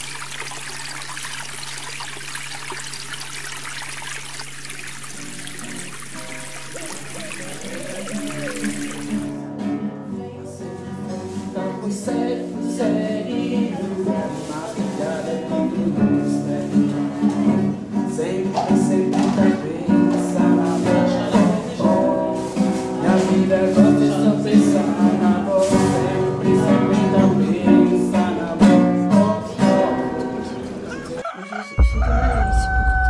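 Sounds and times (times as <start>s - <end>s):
acoustic guitar strumming: 5.2s - 33.0s
person singing: 6.7s - 9.3s, 10.0s - 33.0s.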